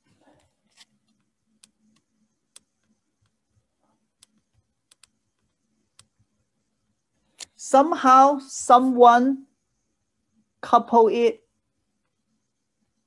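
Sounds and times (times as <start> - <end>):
faint computer clicks: 0.4 - 6.4.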